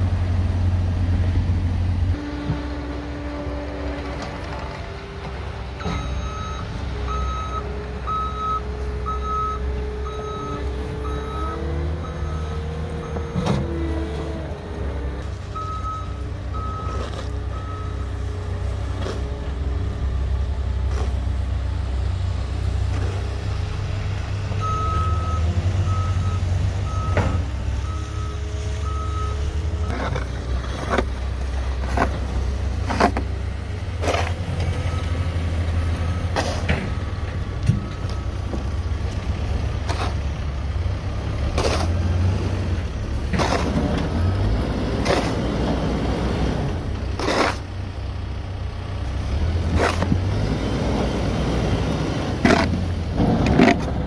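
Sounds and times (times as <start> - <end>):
diesel engine rumbling: 0.0 - 54.0
reversing alarm beeps: 5.8 - 13.6, 15.6 - 18.2, 24.6 - 30.0, 36.0 - 38.4
snow scraped off pavement: 41.2 - 47.7.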